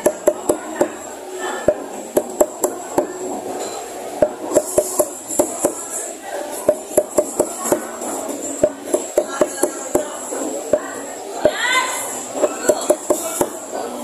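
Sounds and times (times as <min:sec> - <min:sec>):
cleaver chopping on wooden block: 0:00.0 - 0:01.0, 0:04.3 - 0:05.8, 0:06.7 - 0:07.9, 0:08.6 - 0:10.1, 0:12.4 - 0:13.6.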